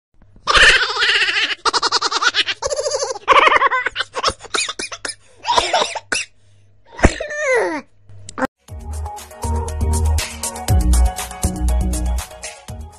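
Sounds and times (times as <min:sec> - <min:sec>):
person laughing: 0:00.5 - 0:04.8.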